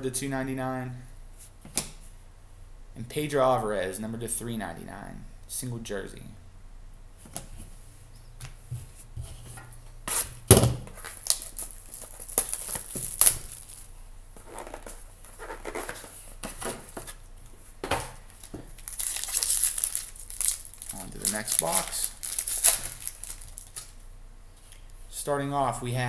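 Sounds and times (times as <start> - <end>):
foil wrapper crinkling: 10.9 - 17.0, 18.1 - 24.0.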